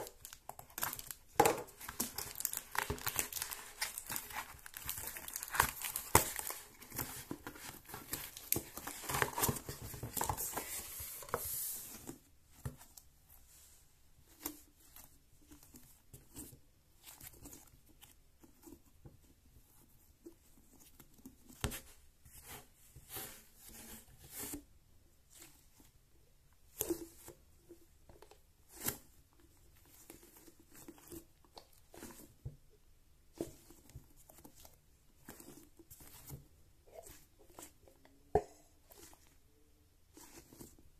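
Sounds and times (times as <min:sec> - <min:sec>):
plastic wrapping crinkling: 0:00.0 - 0:11.4
soft ball squishing: 0:00.0 - 0:40.9.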